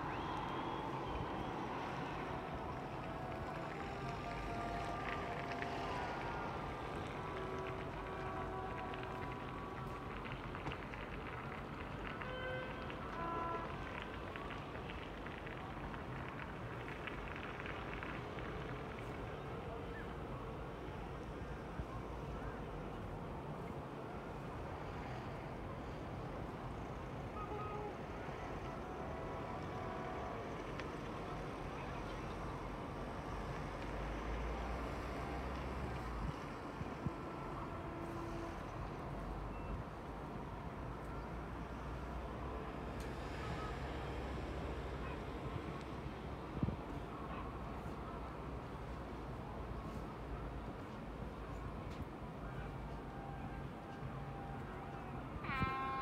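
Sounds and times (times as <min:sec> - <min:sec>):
constant fine crackle: 0:00.0 - 0:56.0.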